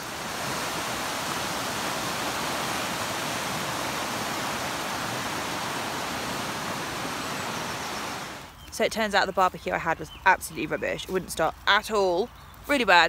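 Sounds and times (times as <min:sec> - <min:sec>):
river rushing over rocks: 0:00.0 - 0:08.5.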